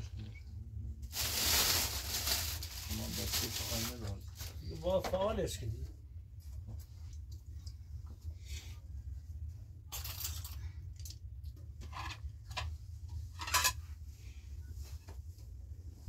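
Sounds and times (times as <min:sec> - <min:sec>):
steady low hum: 0:00.0 - 0:16.0
dishes clinking and clattering: 0:13.3 - 0:13.9.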